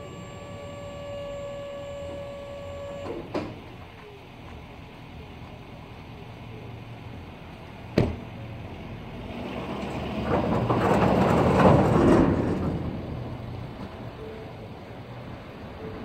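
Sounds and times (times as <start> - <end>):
truck door shutting: 3.0 - 3.7.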